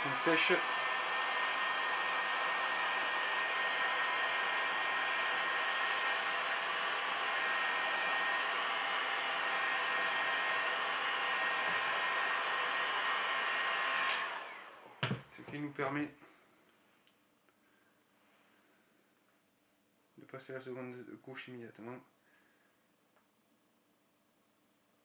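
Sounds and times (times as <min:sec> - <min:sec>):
heat gun blowing air: 0:00.0 - 0:15.0.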